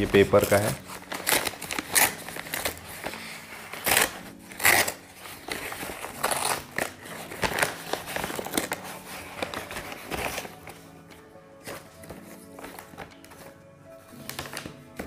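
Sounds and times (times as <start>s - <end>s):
paper bag tearing and crinkling: 0.0s - 10.8s.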